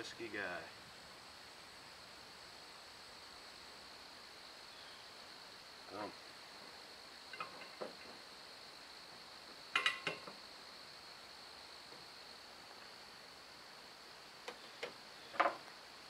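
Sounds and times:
insects droning: 0.0s - 16.0s
light metallic clinks: 7.3s - 8.2s, 9.7s - 10.4s.

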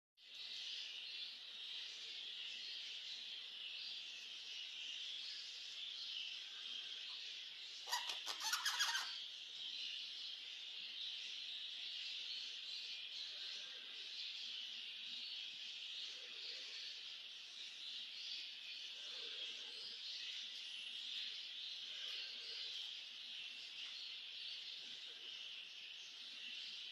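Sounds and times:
budgerigars chattering: 7.8s - 9.2s
birds squawking: 7.9s - 9.2s.

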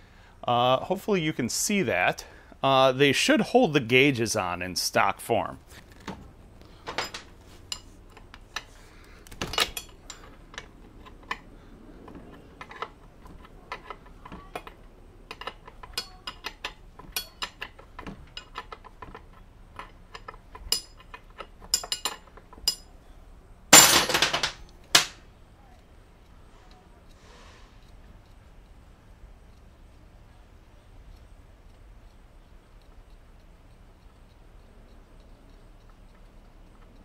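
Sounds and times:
wrench clinking on metal: 6.9s - 11.5s, 12.1s - 23.0s.

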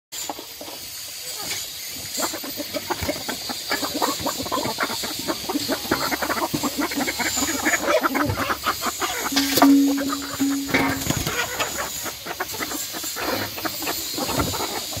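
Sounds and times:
hens pecking dirt: 2.0s - 9.2s
hens clucking: 2.0s - 15.0s.

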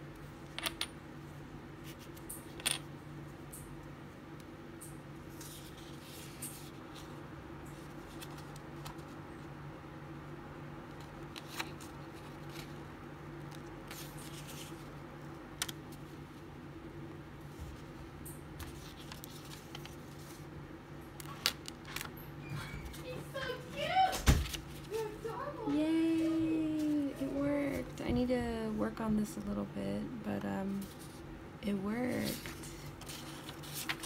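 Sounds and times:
low steady hum: 0.0s - 34.0s
paper rustling: 5.3s - 9.2s, 13.4s - 15.0s, 18.6s - 20.5s, 22.9s - 28.0s, 32.0s - 34.0s.

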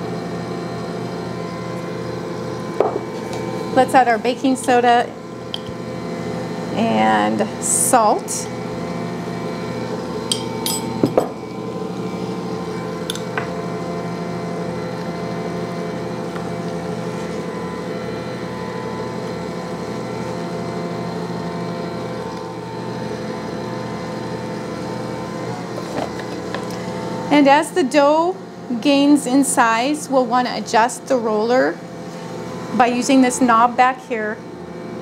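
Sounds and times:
stand mixer motor humming: 8.5s - 27.4s
sharp clinks: 10.3s - 11.0s.

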